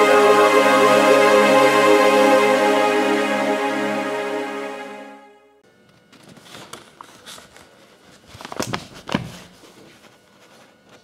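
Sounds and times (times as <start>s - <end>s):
background music: 0.0s - 5.6s.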